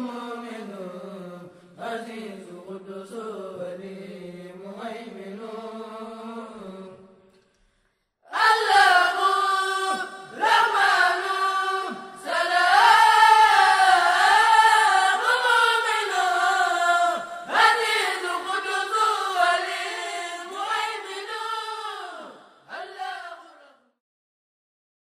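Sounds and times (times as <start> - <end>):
person chanting: 8.3 - 23.9.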